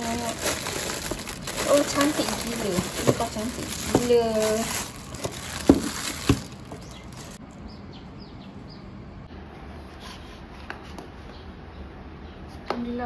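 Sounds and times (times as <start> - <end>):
high falling bird chirps: 5.0 - 9.0.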